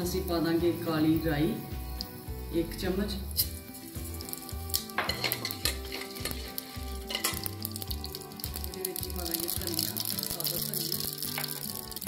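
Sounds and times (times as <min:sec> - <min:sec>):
spices sizzling and popping in oil: 0:00.0 - 0:12.0
ladle stirring in steel pot: 0:03.4 - 0:12.0.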